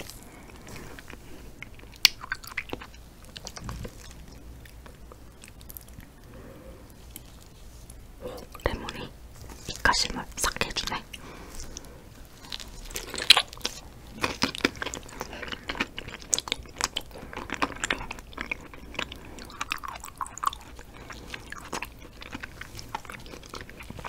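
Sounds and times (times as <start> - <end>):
wet chewing mouth sounds: 10.5 - 24.0.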